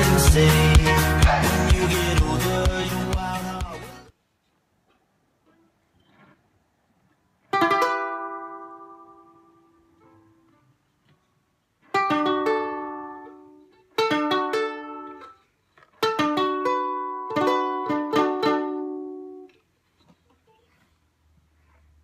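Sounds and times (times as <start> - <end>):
ukulele strumming: 0.0 - 4.1, 7.4 - 10.6, 11.8 - 19.6.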